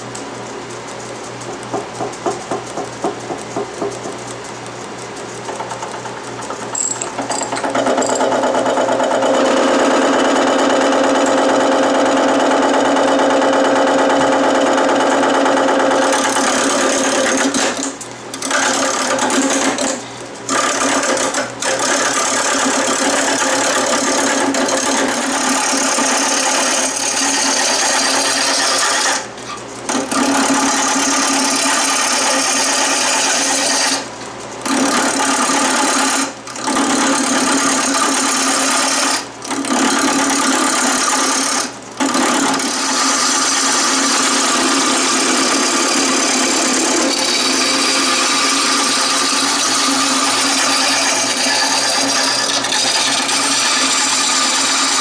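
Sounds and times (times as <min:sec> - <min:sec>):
lathe humming: 0:00.0 - 0:55.0
turning tool scraping wood: 0:15.9 - 0:39.3, 0:39.9 - 0:55.0.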